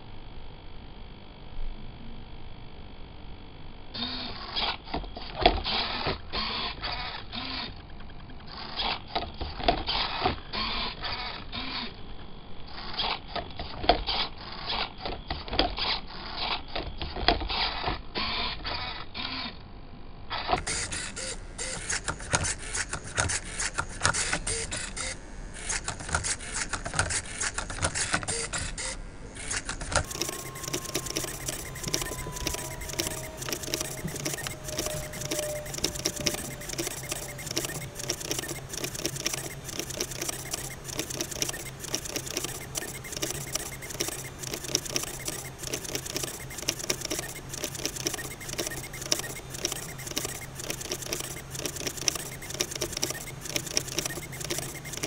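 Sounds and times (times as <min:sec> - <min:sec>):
servo motors whirring: 0:04.0 - 0:12.0, 0:12.7 - 0:19.6, 0:20.3 - 0:55.0
mechanical clicks: 0:20.4 - 0:55.0.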